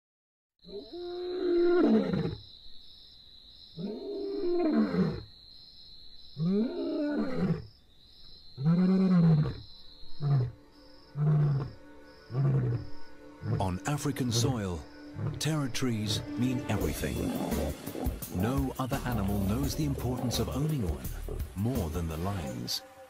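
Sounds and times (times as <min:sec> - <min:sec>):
lion roaring: 0:11.2 - 0:15.5, 0:16.8 - 0:21.6
lion grunt: 0:16.9 - 0:21.6.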